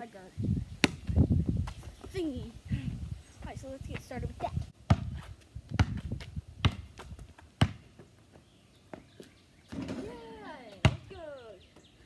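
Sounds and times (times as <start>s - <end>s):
basketball bouncing on hard ground: 0.8s - 1.8s, 4.8s - 10.0s, 10.7s - 11.2s.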